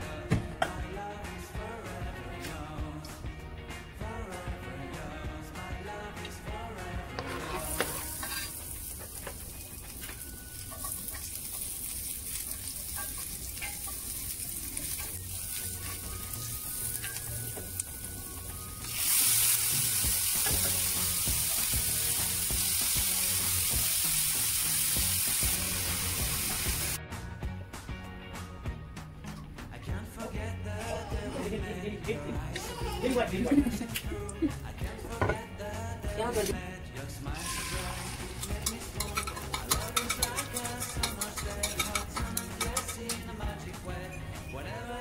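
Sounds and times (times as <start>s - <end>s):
food sizzling in hot oil: 7.2s - 27.0s, 37.3s - 43.6s.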